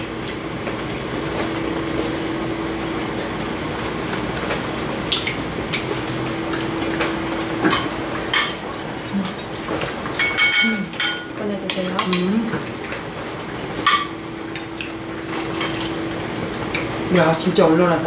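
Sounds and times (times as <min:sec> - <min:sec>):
utensils clinking against bowls: 0:07.6 - 0:13.0, 0:13.8 - 0:16.0, 0:16.7 - 0:17.5.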